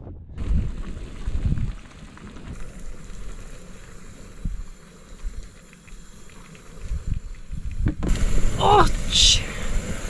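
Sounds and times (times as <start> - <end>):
wind on microphone: 0.0 - 2.7.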